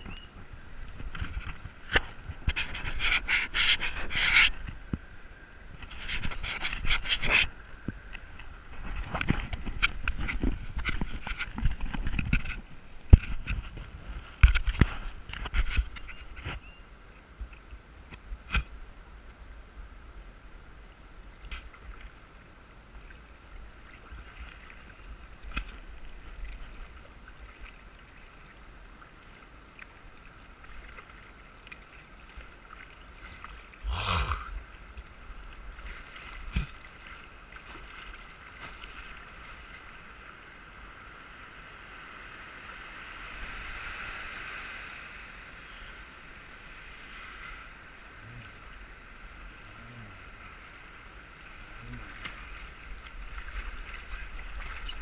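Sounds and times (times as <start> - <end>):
floodwater rushing: 23.4 - 55.0.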